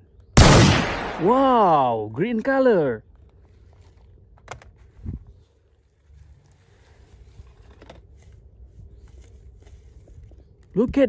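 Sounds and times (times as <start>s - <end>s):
grass rustling: 3.2s - 10.6s.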